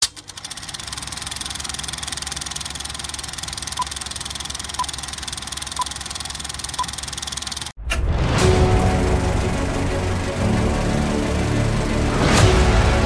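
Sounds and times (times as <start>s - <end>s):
film projector clattering: 0.0s - 7.8s.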